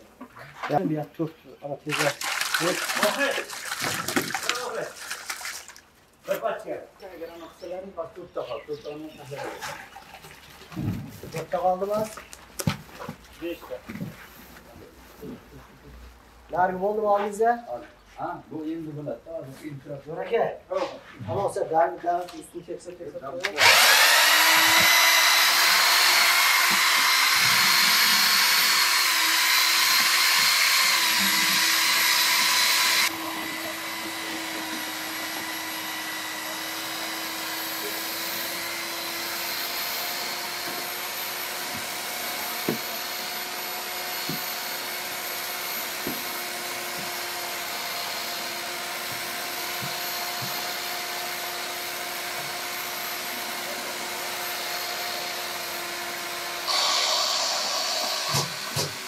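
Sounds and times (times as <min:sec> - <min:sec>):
electric paddle mixer whirring: 0:23.4 - 0:59.0.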